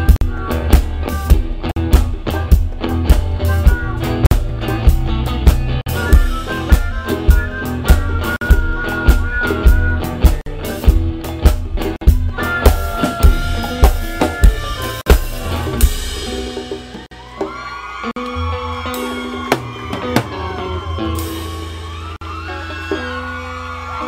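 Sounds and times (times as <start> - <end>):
rock band playing: 0.0 - 24.0.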